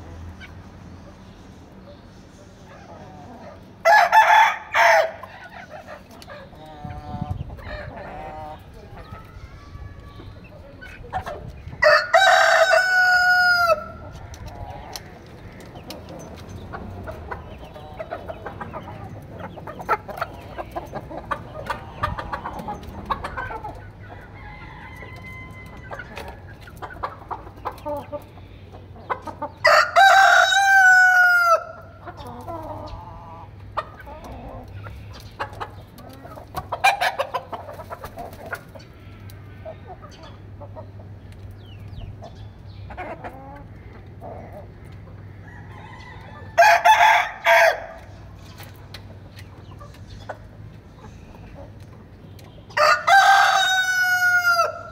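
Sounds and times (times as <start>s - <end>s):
hens clucking quietly: 0.0s - 54.9s
rooster crowing: 3.8s - 5.2s, 11.8s - 14.0s, 24.2s - 26.1s, 29.6s - 31.8s, 45.4s - 48.0s, 52.8s - 54.9s.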